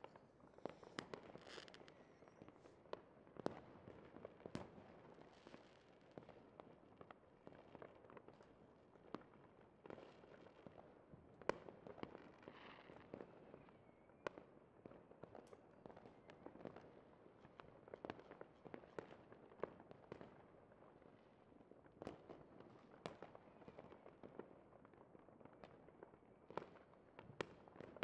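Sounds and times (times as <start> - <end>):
fireworks popping and cracking: 0.0 - 6.7, 11.4 - 13.6.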